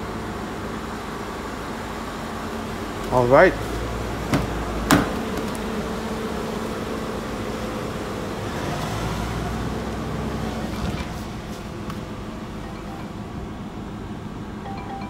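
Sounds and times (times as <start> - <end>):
steady hum: 11.2 - 15.0.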